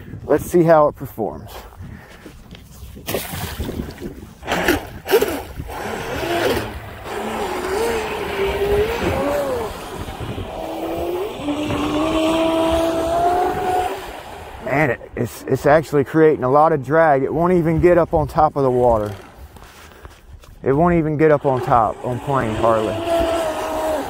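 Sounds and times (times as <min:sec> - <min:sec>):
model boat motor running: 0:04.4 - 0:15.1, 0:21.2 - 0:24.0.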